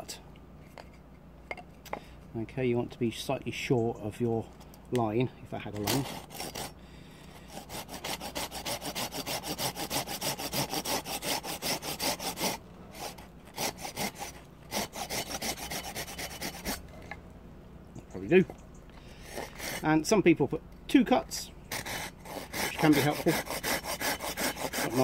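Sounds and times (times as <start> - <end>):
hand saw cutting wood: 5.6 - 6.8, 7.4 - 17.1, 19.2 - 20.1, 21.7 - 25.0.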